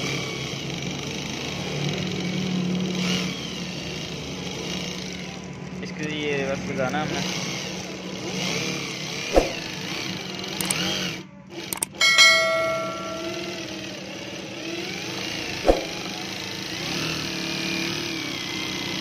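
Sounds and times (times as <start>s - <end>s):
sharp clicks: 10.6s - 10.8s, 11.7s - 12.0s
chime sound effect: 11.8s - 13.9s.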